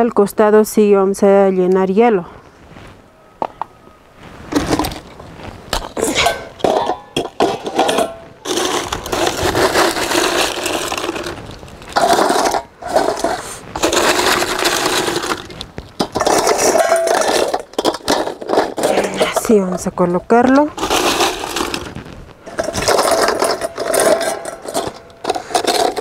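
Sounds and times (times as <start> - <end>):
ice cracking and crunching: 4.4 - 26.0
ice clinking against metal bucket: 5.8 - 26.0.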